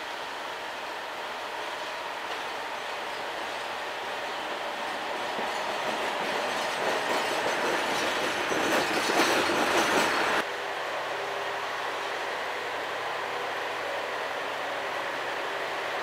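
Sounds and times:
diesel locomotive passing: 0.0s - 16.0s
wheels clicking over rail joints: 4.8s - 10.4s.

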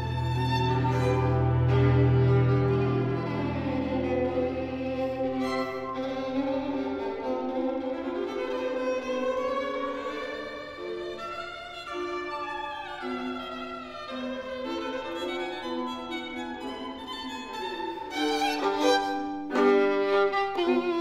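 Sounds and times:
low accompaniment with bass note: 0.0s - 7.6s
bowed violin melody: 0.0s - 21.0s.

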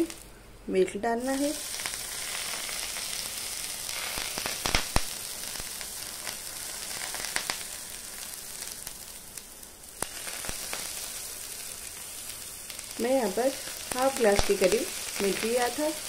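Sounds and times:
crackles and pops: 0.0s - 0.3s, 1.3s - 16.0s
bread sizzling in a pan: 1.2s - 16.0s.

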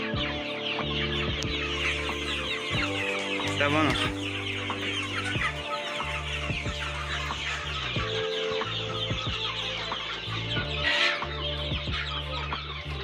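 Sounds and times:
background music with low notes: 0.0s - 13.0s
chicks peeping and clucking: 0.0s - 13.0s.

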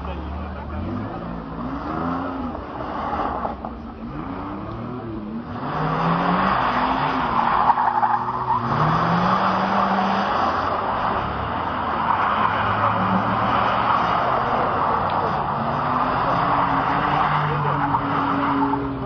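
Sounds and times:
car engines revving: 0.0s - 19.0s
tyres spinning and sliding: 0.0s - 19.0s.

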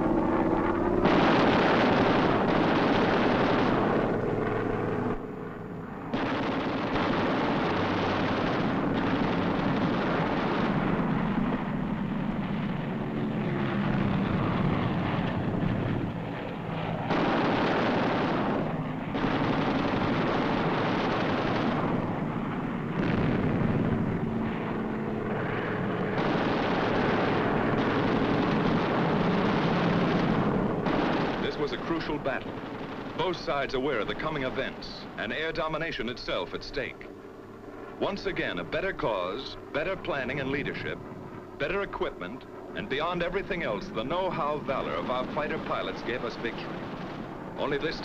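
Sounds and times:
aircraft engines droning: 0.0s - 48.0s
machine-gun fire: 1.0s - 4.1s, 6.1s - 11.2s, 17.1s - 22.1s, 23.0s - 23.9s, 26.1s - 34.7s.

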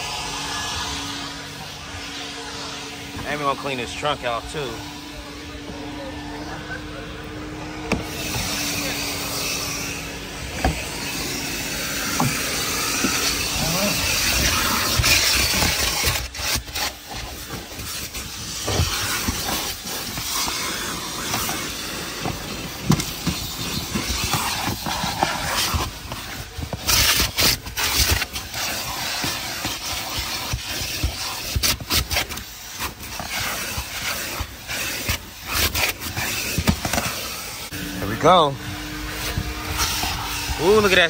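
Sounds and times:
vacuum cleaner running: 0.0s - 41.0s.

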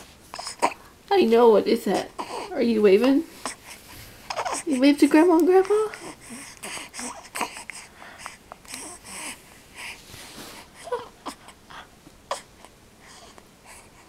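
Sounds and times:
baby breathing: 0.0s - 0.9s, 1.9s - 4.9s, 5.6s - 14.0s
baby cooing: 0.3s - 0.8s, 1.9s - 4.9s, 5.6s - 7.9s, 8.6s - 9.4s, 10.8s - 11.6s, 12.3s - 13.3s.

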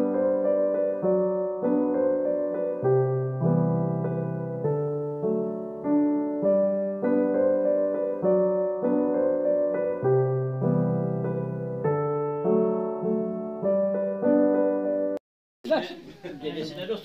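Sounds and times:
slow piano music: 0.0s - 15.2s.

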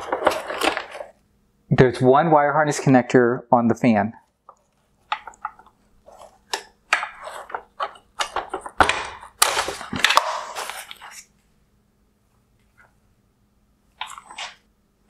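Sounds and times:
plastic scraping: 0.0s - 1.2s, 4.5s - 11.3s
plastic parts clicking and knocking: 4.4s - 10.5s.

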